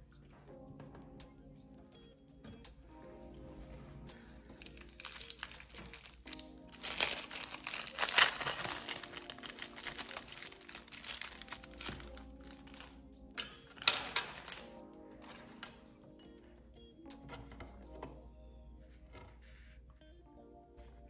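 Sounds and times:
soft background music: 0.0s - 21.0s
plastic wrapper crinkling: 4.5s - 15.7s.

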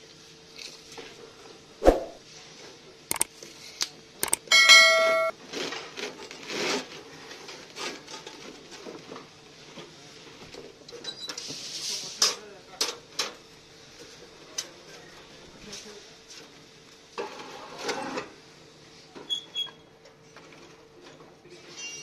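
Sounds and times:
loud bell-like ding: 4.5s - 5.3s.

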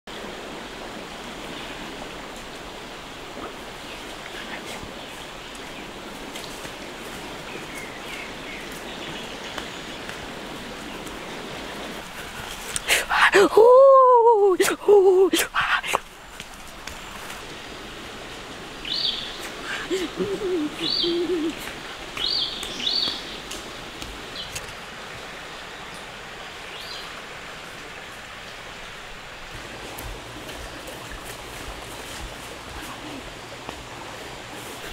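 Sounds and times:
steady outdoor hiss: 0.1s - 34.9s
light ticks and rustles: 3.3s - 13.3s, 15.3s - 17.6s, 21.5s - 26.1s, 29.4s - 34.9s
bird chirping: 18.8s - 19.4s, 20.2s - 21.6s, 22.2s - 23.5s
outdoor rushing ambience: 28.9s - 34.9s.

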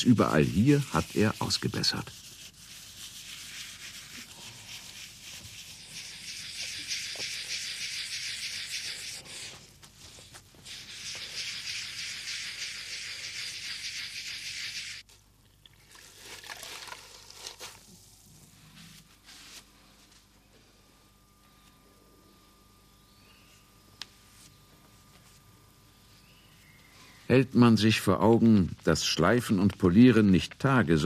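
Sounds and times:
hand sanding a surface: 0.0s - 15.0s.

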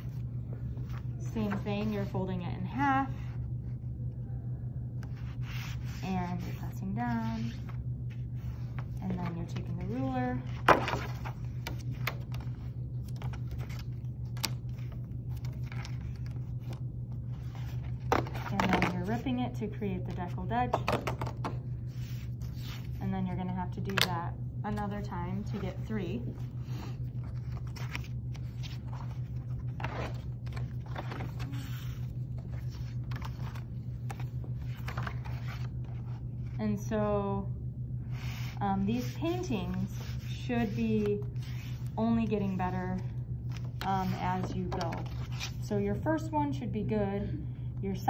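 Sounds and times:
steady low hum: 0.0s - 48.0s
paper rustling: 26.3s - 36.6s.

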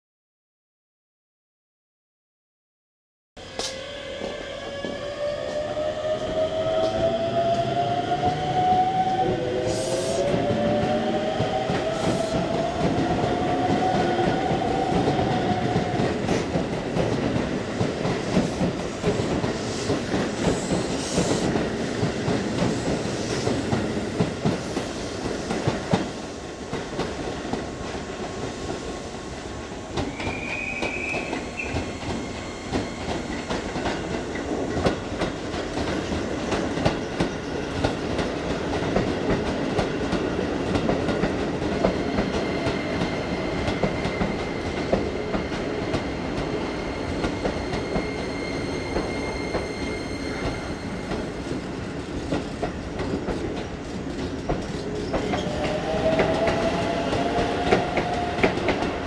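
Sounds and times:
train wheels clattering on rails: 10.3s - 28.0s, 30.0s - 59.0s.

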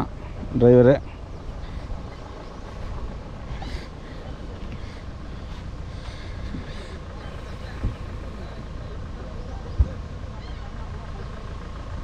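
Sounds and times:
car engine rumble: 0.0s - 12.0s
road noise: 0.0s - 12.0s.

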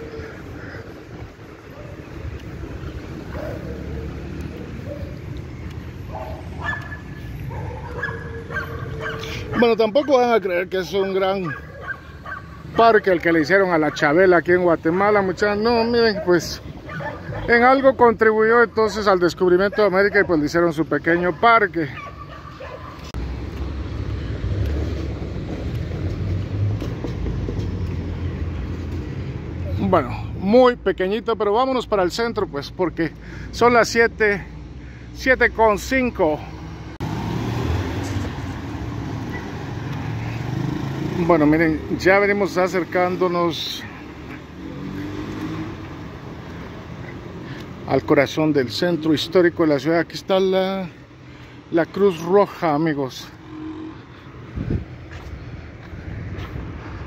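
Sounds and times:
city street traffic rumble: 0.0s - 57.0s
dog barking: 3.3s - 4.1s, 6.1s - 10.2s, 11.4s - 12.7s, 16.1s - 17.5s, 19.6s - 20.4s, 21.3s - 23.1s.

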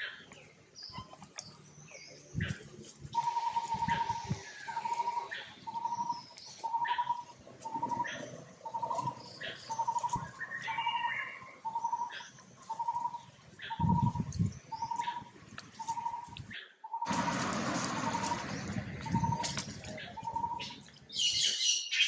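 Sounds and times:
low rumbling noise: 17.1s - 21.1s.

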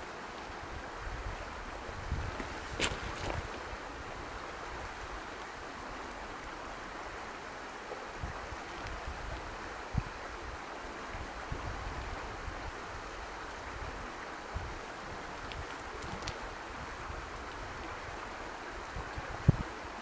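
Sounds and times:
wind and rain on microphone: 0.0s - 20.0s
gusts thumping microphone: 1.9s - 3.8s.

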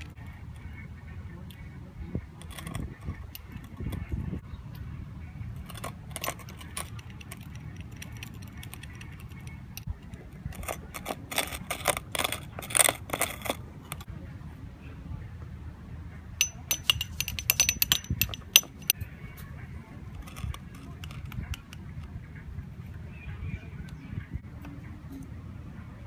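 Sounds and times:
metal rod clinking against glass: 16.4s - 19.0s.

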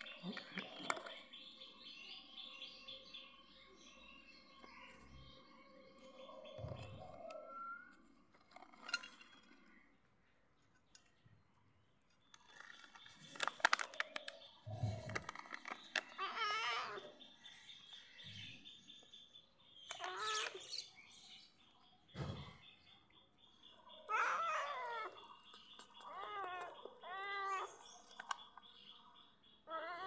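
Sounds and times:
clicks and rustles: 12.0s - 16.4s
wavering chirping calls: 19.8s - 21.1s.

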